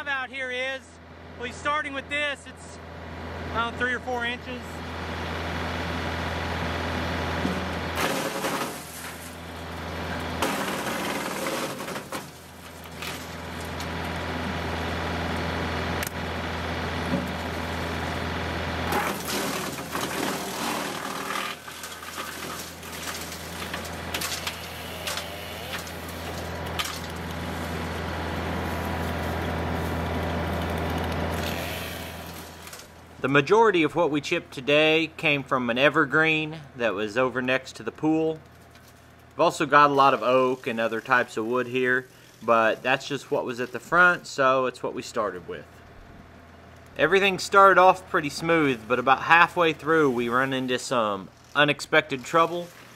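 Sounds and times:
wood chipper droning: 0:00.0 - 0:52.9
wood cracking and splintering: 0:07.6 - 0:14.5, 0:18.9 - 0:33.1.

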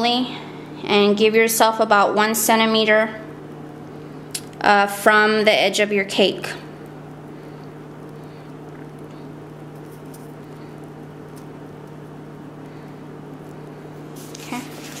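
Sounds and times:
steady low hum: 0:00.0 - 0:15.0
crinkly rustle of bag: 0:14.0 - 0:15.0.

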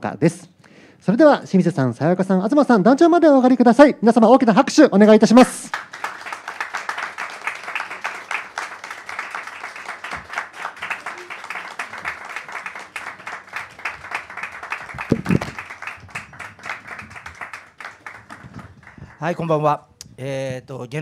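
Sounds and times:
audience applauding: 0:05.0 - 0:19.7.

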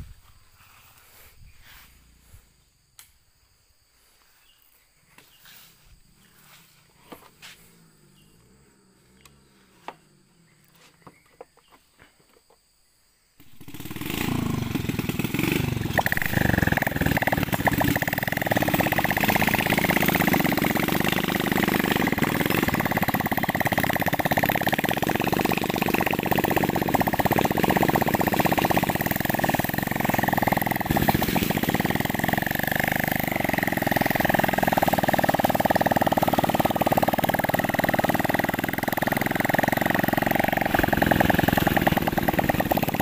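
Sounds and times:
small petrol engine running: 0:13.4 - 0:43.0.

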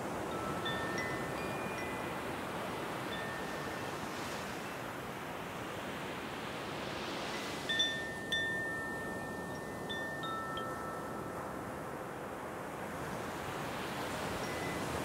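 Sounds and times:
wind chimes ringing: 0:00.2 - 0:04.0, 0:07.3 - 0:11.7, 0:14.4 - 0:14.8.

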